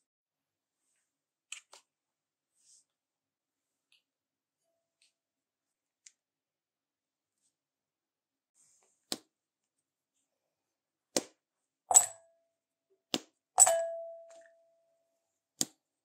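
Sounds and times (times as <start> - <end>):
chocolate clinking into glass bowl: 11.9 - 12.2, 13.6 - 14.5.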